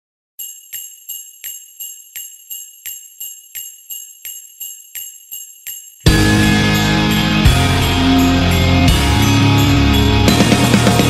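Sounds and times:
jingle bells shaken: 0:00.4 - 0:10.9
loud music: 0:06.1 - 0:11.0.

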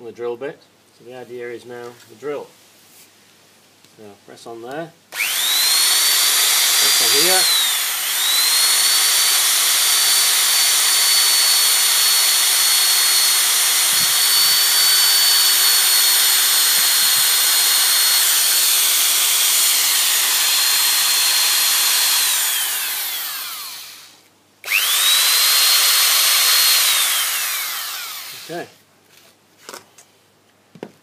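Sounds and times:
electric drill whining: 0:05.1 - 0:28.7.

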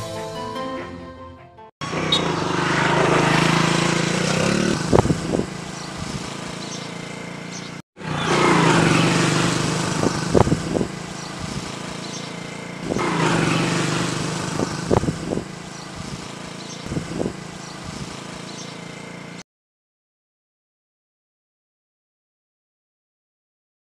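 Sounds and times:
motorcycle engine running: 0:01.8 - 0:19.4.

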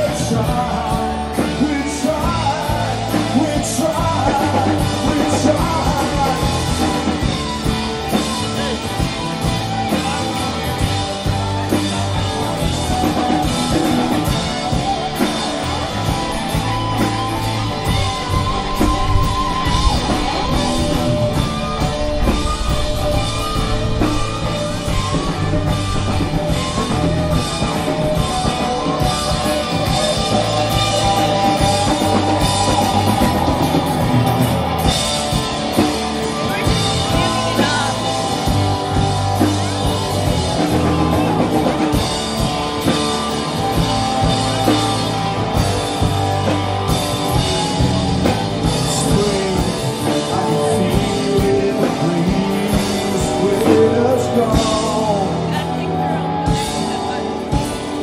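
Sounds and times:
person singing: 0:00.0 - 0:10.7, 0:11.3 - 0:35.0, 0:47.4 - 0:57.9
live rock band playing: 0:00.0 - 0:58.0.

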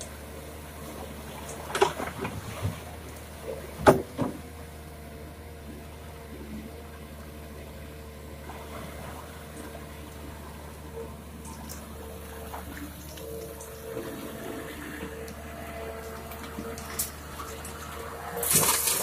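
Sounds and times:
excavator diesel hum and whine: 0:00.0 - 0:19.0
water splashing off bucket: 0:16.8 - 0:19.0.

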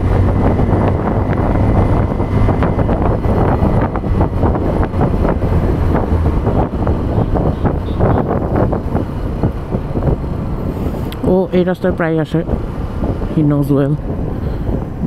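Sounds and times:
motorcycle engine running: 0:00.0 - 0:10.8
wind buffeting microphone: 0:00.0 - 0:15.0.

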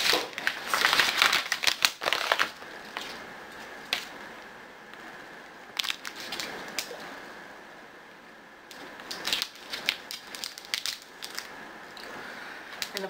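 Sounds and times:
wrapper crackling as opened: 0:00.0 - 0:03.2, 0:05.7 - 0:07.0, 0:08.7 - 0:12.1
plastic packaging crinkling: 0:00.0 - 0:04.2, 0:05.7 - 0:07.0, 0:08.7 - 0:12.1.

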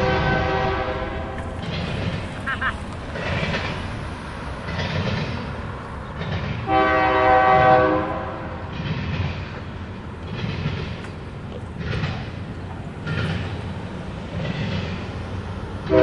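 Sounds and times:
train horn chord: 0:00.0 - 0:01.4, 0:06.7 - 0:08.6
train wheels clacking: 0:00.0 - 0:16.0.

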